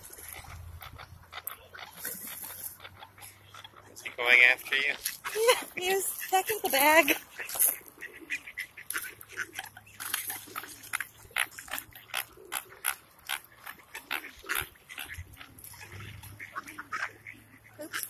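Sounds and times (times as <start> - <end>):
ducks quacking: 0.1 - 18.0
geese honking: 0.2 - 18.0.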